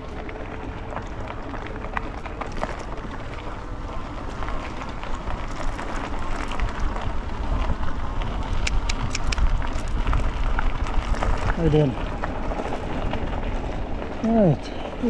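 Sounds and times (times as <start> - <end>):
wind buffeting microphone: 0.0 - 15.0
sharp clicks: 8.6 - 9.5.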